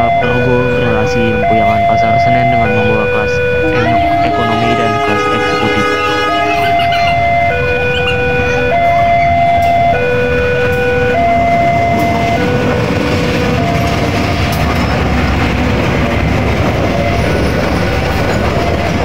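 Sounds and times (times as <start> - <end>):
locomotive engine rumble: 0.0 - 19.0
two-tone crossing alarm: 0.0 - 19.0
wheels clattering over rails: 4.9 - 19.0.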